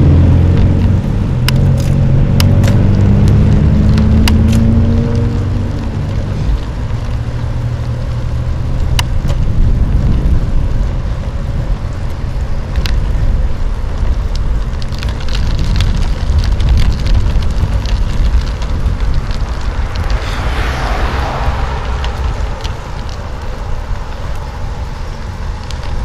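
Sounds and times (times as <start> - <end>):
bicycle rolling over asphalt: 0.0 - 26.0
sharp clicks and rattles: 0.6 - 10.8, 11.8 - 20.2.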